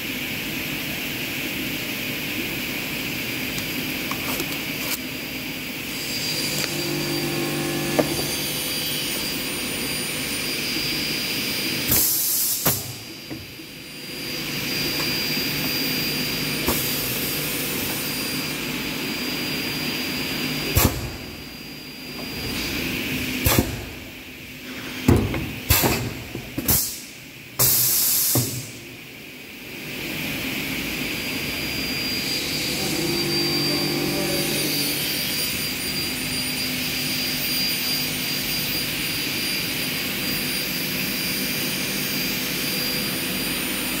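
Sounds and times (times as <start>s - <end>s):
machine humming: 5.5s - 12.0s, 29.9s - 40.4s.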